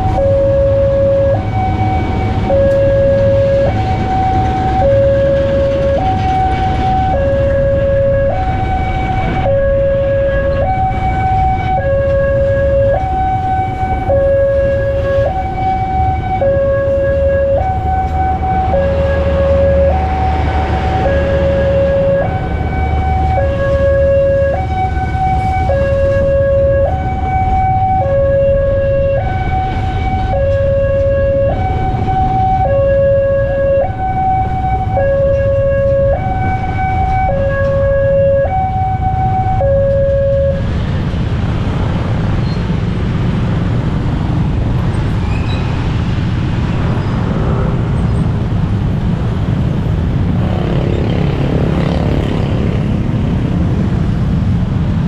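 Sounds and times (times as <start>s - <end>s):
train rumbling past: 0.0s - 28.0s, 38.9s - 55.0s
idling motorcycles and cars: 47.6s - 55.0s.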